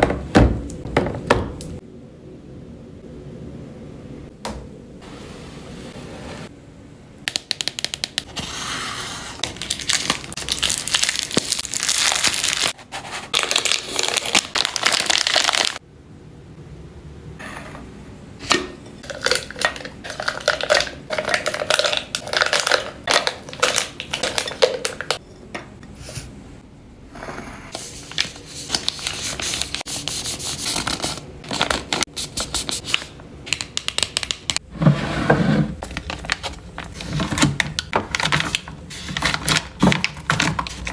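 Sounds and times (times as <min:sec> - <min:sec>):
items tapping containers: 0:07.3 - 0:08.3, 0:18.5 - 0:25.8
packaging crinkling: 0:09.4 - 0:15.8, 0:19.0 - 0:25.2, 0:35.8 - 0:40.9.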